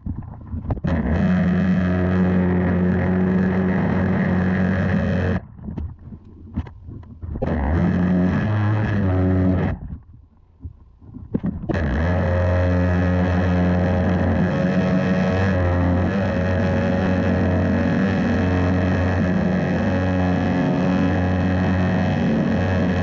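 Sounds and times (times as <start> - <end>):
pressure washer buzzing drone: 0.9 - 5.4, 7.5 - 9.7, 11.7 - 23.0.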